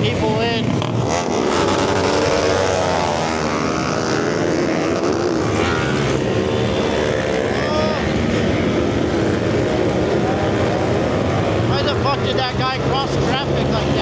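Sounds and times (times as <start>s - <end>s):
motorbike engines idling and revving: 0.0s - 14.0s.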